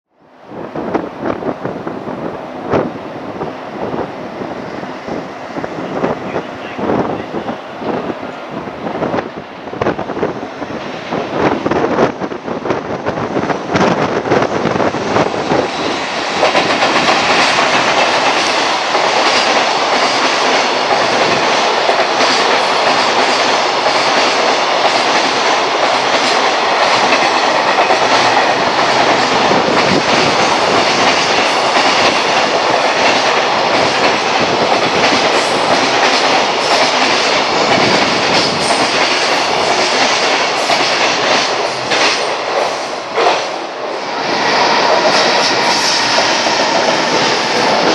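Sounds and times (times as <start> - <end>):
freight train passing: 0.2 - 47.9.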